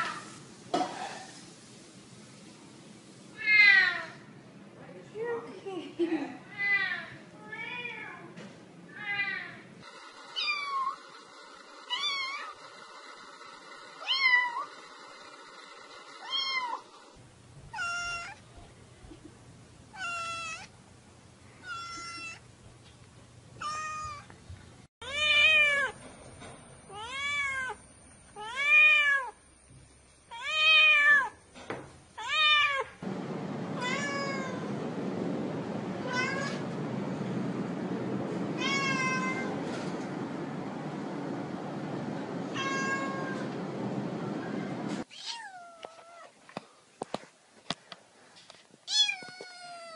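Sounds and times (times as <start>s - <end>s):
hiss: 0.0s - 3.4s
cat meowing: 17.7s - 18.4s, 36.0s - 36.6s, 38.6s - 39.5s, 42.5s - 43.4s, 45.1s - 46.3s, 48.9s - 49.9s
steady hum: 33.0s - 45.0s.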